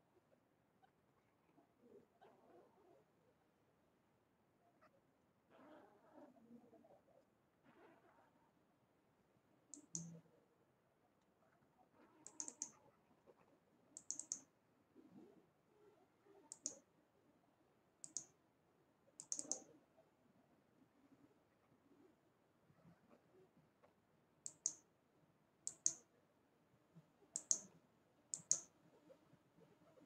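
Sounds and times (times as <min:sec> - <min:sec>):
computer mouse clicking: 0:09.7 - 0:10.2, 0:12.2 - 0:12.8, 0:14.0 - 0:14.5, 0:16.5 - 0:16.9, 0:18.0 - 0:18.4, 0:19.2 - 0:19.8, 0:24.4 - 0:24.9, 0:25.6 - 0:26.1, 0:27.3 - 0:28.8.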